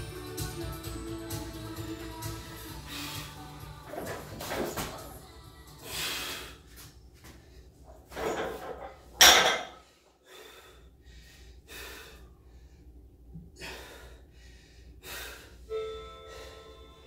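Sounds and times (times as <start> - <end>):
heavy breathing: 1.8 - 3.6, 5.7 - 7.8, 9.8 - 17.0
barbell crashing onto floor: 8.2 - 9.8.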